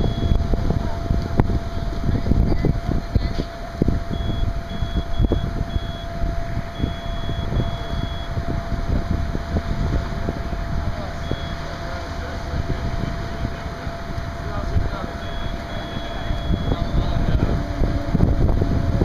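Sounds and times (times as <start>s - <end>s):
high-pitched electronic beeps: 0.0s - 0.4s, 4.1s - 8.4s, 11.1s - 11.8s, 15.0s - 17.2s
faint steady hum: 0.0s - 19.0s
low rumbling noise: 0.0s - 19.0s.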